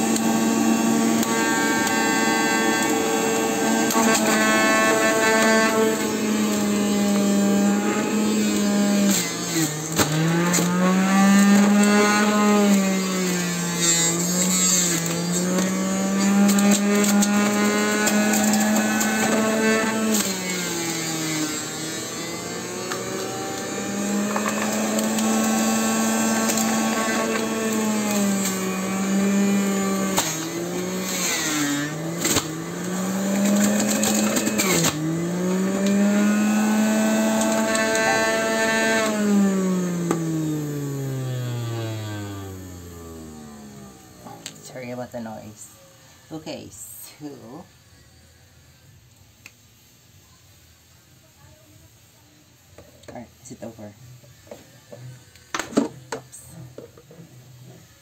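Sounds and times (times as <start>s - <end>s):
juicer motor hum: 0.0s - 45.5s.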